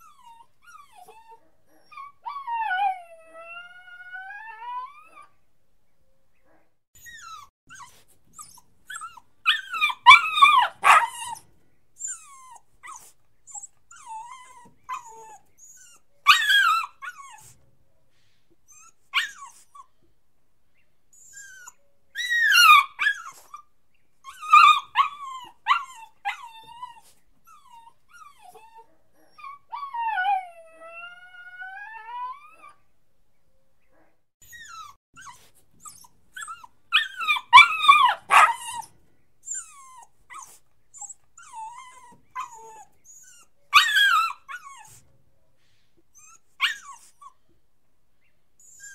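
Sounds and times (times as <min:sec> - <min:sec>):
puppy whining and crying: 0:00.0 - 0:05.4, 0:07.0 - 0:17.7, 0:18.7 - 0:20.1, 0:21.1 - 0:32.8, 0:34.4 - 0:45.2, 0:46.1 - 0:47.5, 0:48.6 - 0:48.9.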